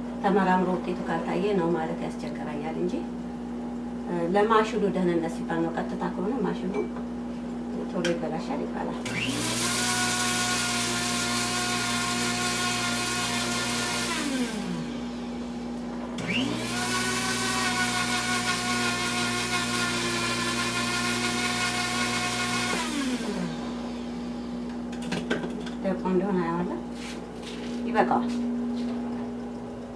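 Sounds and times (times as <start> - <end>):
electric spice grinder whining: 9.0 - 24.9.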